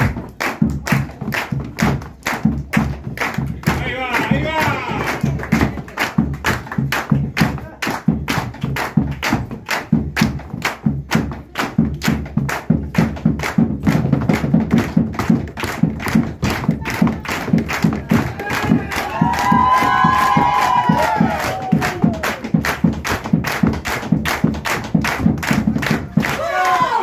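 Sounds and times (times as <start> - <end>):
bass drum beating: 0.0 - 26.5
feet stamping on wooden floor: 7.6 - 26.3.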